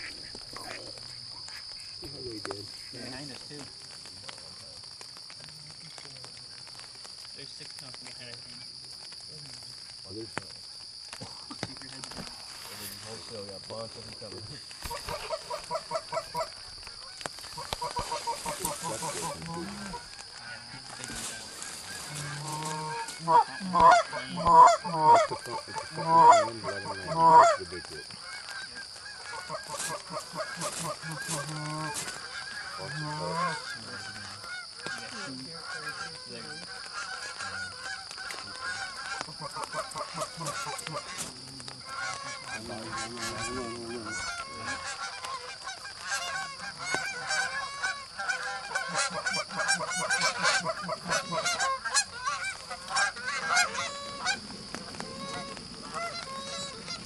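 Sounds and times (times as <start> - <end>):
geese honking: 12.6 - 57.0.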